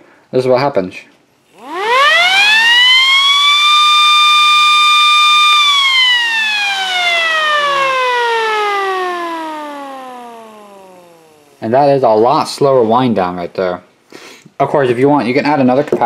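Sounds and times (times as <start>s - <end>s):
electromechanical siren wailing: 1.5s - 12.6s.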